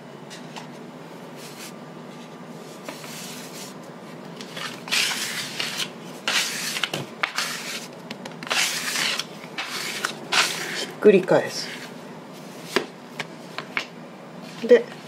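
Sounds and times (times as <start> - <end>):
dough scraper scraping surface: 4.5 - 12.0.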